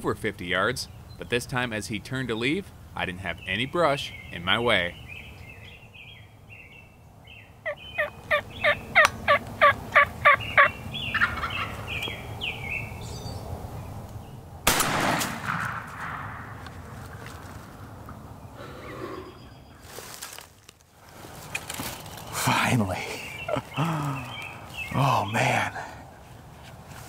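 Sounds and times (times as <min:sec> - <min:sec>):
wild turkey yelps: 0:07.6 - 0:12.1
shotgun blast with echo: 0:14.7 - 0:16.5.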